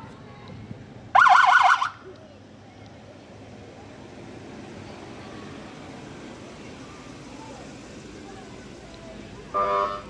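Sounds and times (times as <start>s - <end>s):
street noise: 0.0s - 10.0s
siren yelp: 1.2s - 2.0s
vehicle rolling past: 2.4s - 10.0s.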